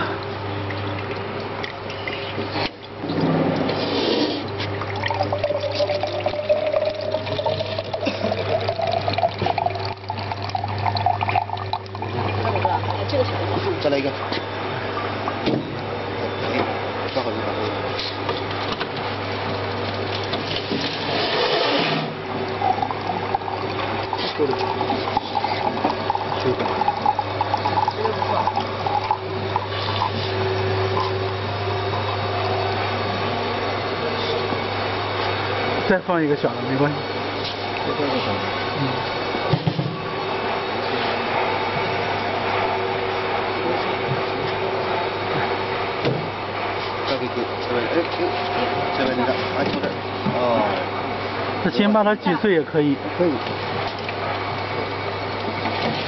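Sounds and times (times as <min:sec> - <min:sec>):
electric juicer humming: 0:03.6 - 0:14.1, 0:18.5 - 0:36.8
juice pouring into jug: 0:03.6 - 0:14.2, 0:19.0 - 0:34.0.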